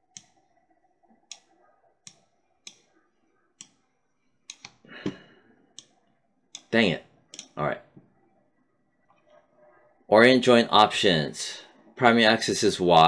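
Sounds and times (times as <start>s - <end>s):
computer mouse clicking: 1.2s - 2.9s, 3.6s - 3.8s, 4.5s - 4.8s, 5.8s - 6.7s, 7.3s - 7.6s.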